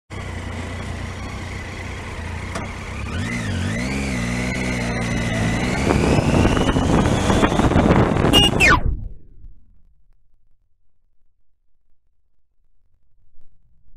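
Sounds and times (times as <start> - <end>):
motorcycle engine idling: 0.1 - 3.6
wind noise on microphone: 5.6 - 9.4.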